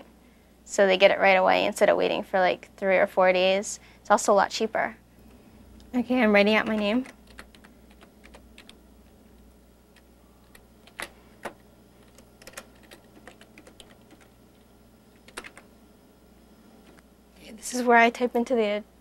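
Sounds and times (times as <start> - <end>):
faint low hum: 0.0 - 19.0
keyboard keys clicking: 6.6 - 8.8, 10.0 - 15.7.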